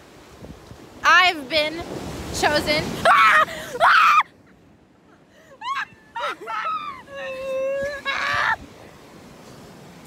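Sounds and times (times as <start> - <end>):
woman squealing: 5.6 - 8.6
woman wailing: 5.6 - 8.6.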